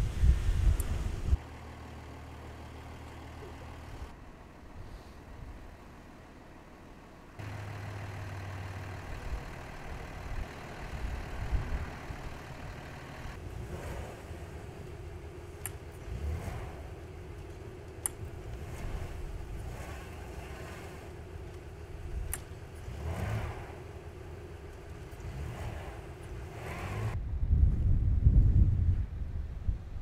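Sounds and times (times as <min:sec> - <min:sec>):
vehicle engines running: 0:00.0 - 0:27.4
sharp clicks: 0:15.6 - 0:16.0, 0:17.4 - 0:18.3, 0:22.2 - 0:22.6.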